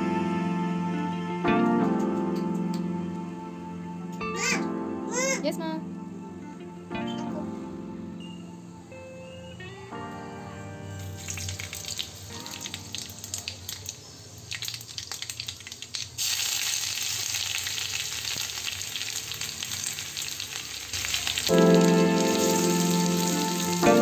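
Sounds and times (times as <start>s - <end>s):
spices frying in hot oil: 11.0s - 24.0s.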